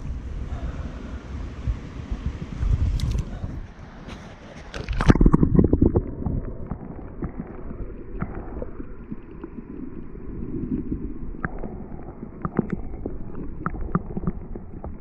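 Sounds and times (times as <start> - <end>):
clicks and knocks underwater: 4.2 - 15.0
muffled underwater creek rumble: 4.6 - 15.0.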